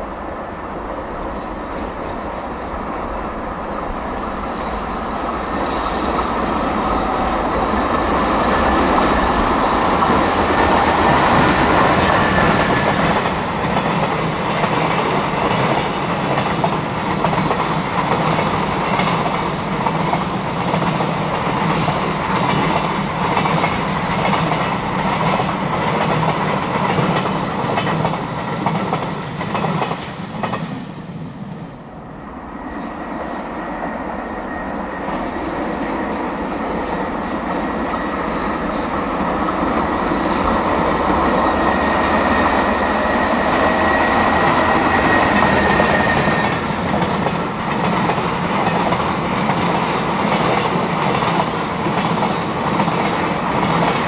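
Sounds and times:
electric locomotive passing: 0.0 - 54.0
train wheels clattering on rail joints: 7.5 - 30.9.

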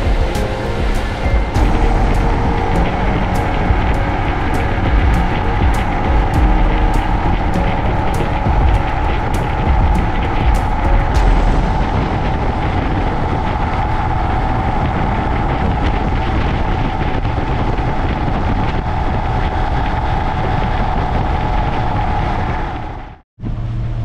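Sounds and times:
motorcycle engine running: 0.0 - 17.5
wind noise on microphone: 0.0 - 24.0.

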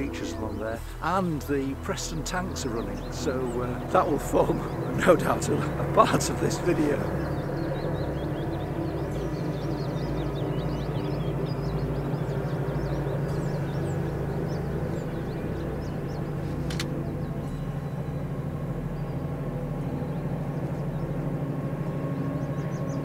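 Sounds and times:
birds chirping: 0.0 - 23.0
diesel locomotive engine drone: 0.0 - 23.0
sharp click: 16.6 - 17.0.

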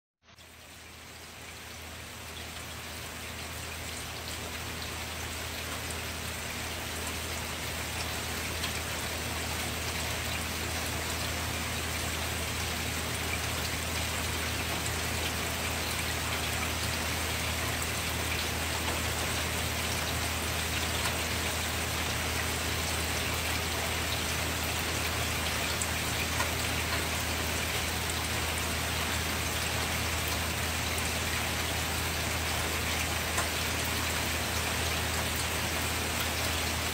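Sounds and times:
steady rain falling: 0.3 - 36.9.

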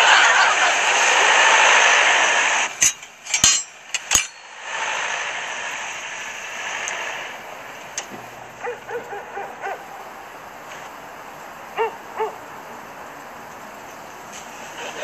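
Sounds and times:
audience laughter: 0.0 - 2.0, 14.6 - 15.0
steady rush of noise: 0.0 - 15.0.

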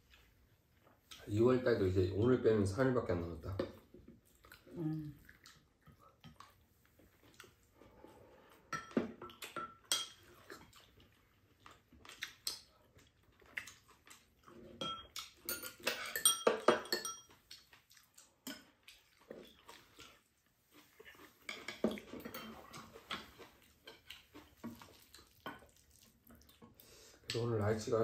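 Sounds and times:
spoons clinking on bowls: 14.8 - 17.4.

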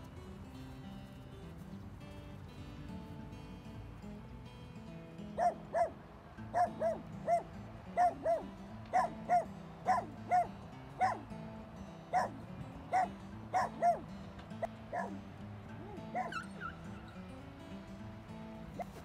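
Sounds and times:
background music: 0.0 - 19.0
dog barking: 5.4 - 11.3, 12.1 - 14.1, 14.9 - 15.2, 15.8 - 16.7.

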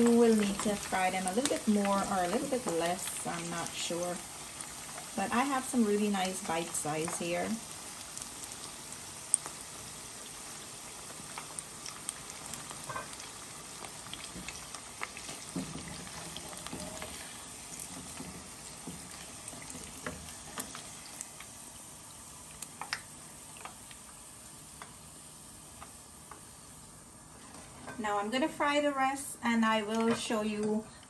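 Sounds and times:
chicken frying in hot oil: 0.0 - 28.0.

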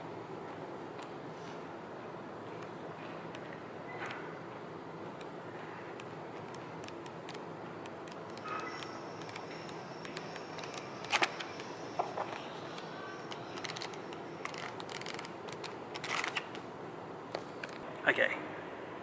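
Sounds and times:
paper pages flipping: 13.2 - 16.6.

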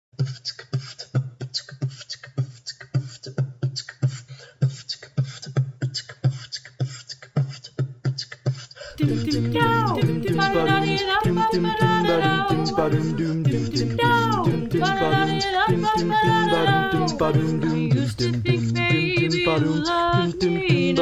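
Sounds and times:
music with singing: 8.9 - 21.0
percussive beat: 9.2 - 21.0.

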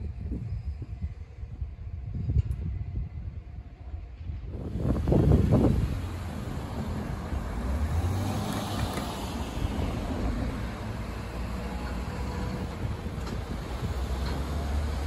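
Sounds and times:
road traffic rumble: 4.6 - 15.0.

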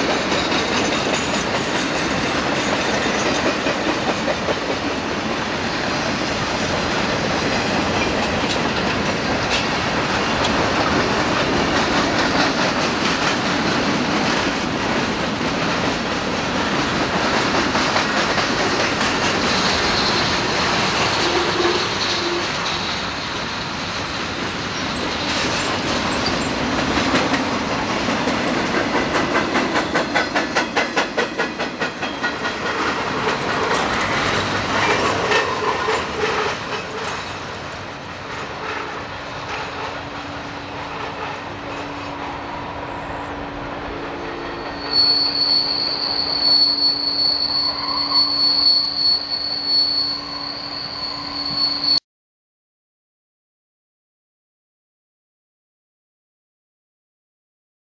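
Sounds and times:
wheels clacking over rail joints: 0.0 - 43.2
high-pitched wheel squeal: 19.6 - 23.2, 42.8 - 52.0.

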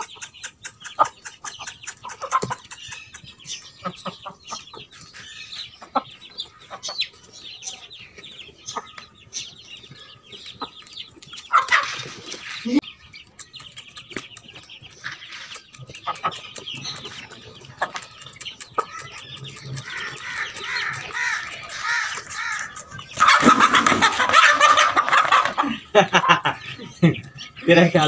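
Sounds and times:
chickens clucking: 0.0 - 28.0
hen squawking loudly: 19.8 - 25.1.

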